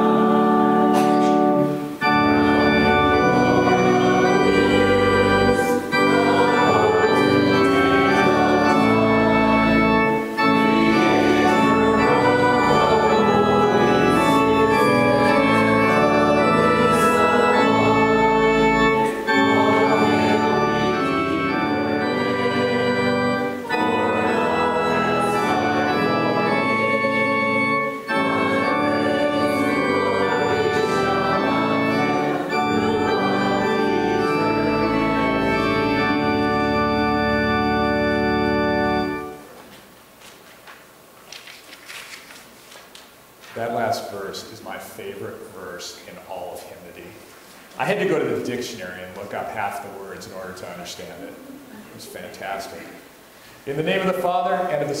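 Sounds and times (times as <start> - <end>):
church organ playing chords: 0.0 - 39.6.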